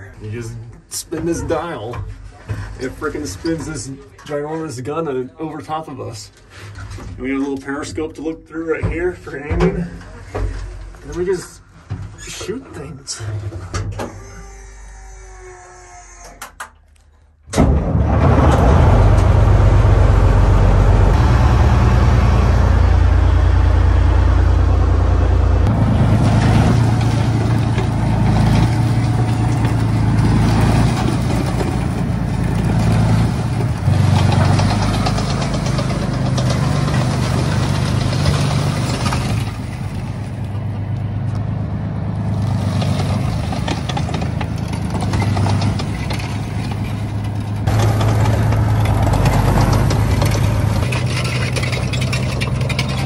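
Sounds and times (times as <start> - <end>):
heavy vehicle engine running: 17.6 - 53.0.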